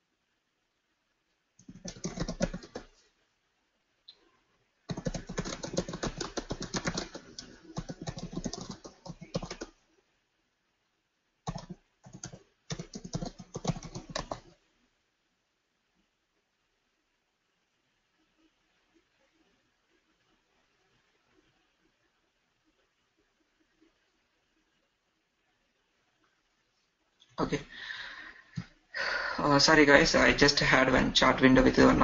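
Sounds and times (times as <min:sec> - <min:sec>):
typing on computer keyboard: 0:01.6 - 0:02.9, 0:04.9 - 0:09.8, 0:11.4 - 0:14.5.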